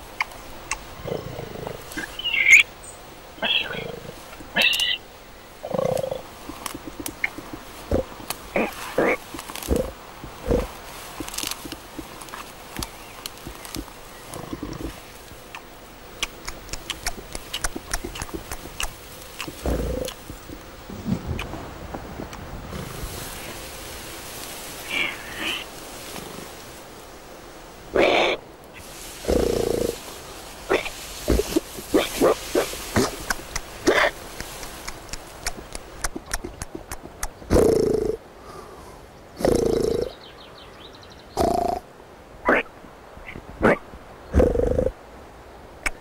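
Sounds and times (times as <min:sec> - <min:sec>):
boar grunts: 0:01.0 - 0:02.2, 0:05.6 - 0:10.8, 0:16.8 - 0:21.3, 0:27.9 - 0:28.4, 0:29.2 - 0:30.0, 0:30.7 - 0:34.5, 0:39.4 - 0:40.2
sharp clicks: 0:15.5 - 0:20.6, 0:33.1 - 0:37.4.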